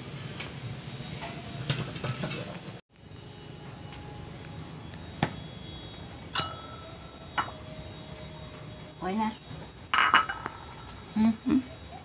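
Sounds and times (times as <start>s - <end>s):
insects chirping: 2.9s - 12.0s.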